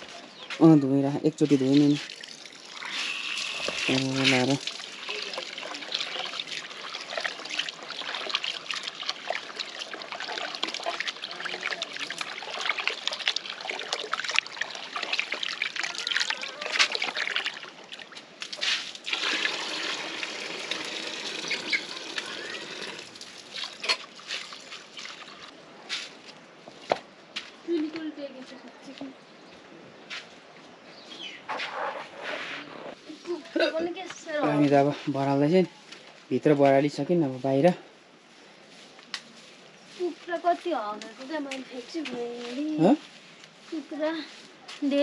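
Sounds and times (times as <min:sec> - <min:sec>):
tap water running into bowl: 0:01.7 - 0:17.6, 0:19.1 - 0:24.1
hand rinsing rice splashing: 0:01.7 - 0:25.5.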